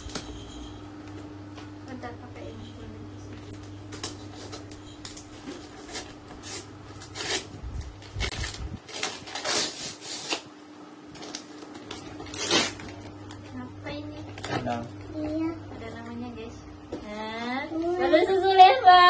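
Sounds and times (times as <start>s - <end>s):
steady low hum: 0.0s - 19.0s
wrapping paper crinkling: 3.9s - 10.5s, 11.1s - 13.4s
wrapping paper tearing: 4.0s - 10.5s, 11.2s - 13.1s.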